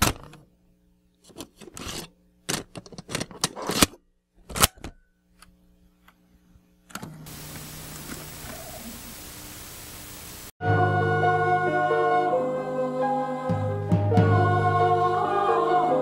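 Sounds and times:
faint hum: 4.4s - 10.5s
static hiss: 7.2s - 10.6s
scratchy crackling bursts: 7.3s - 10.5s.

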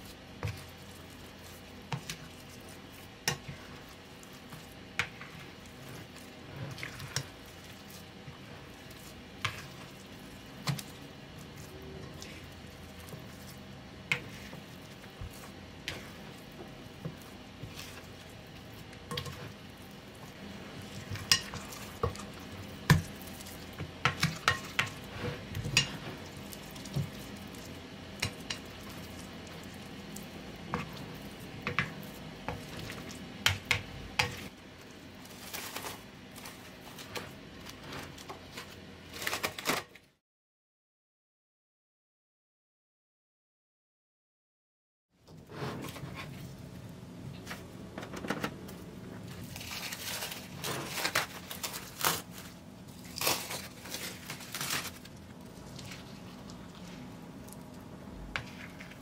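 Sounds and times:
cling wrap crinkling: 34.8s - 40.1s, 49.4s - 57.9s.

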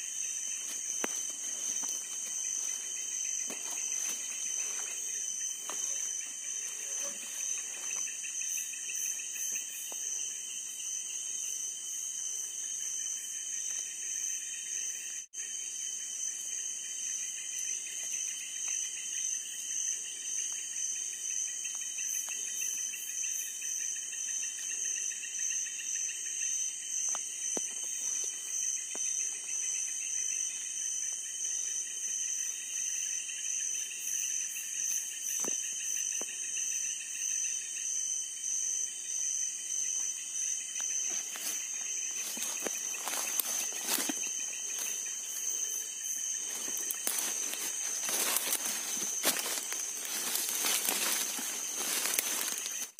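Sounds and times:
insects trilling: 0.0s - 52.9s.

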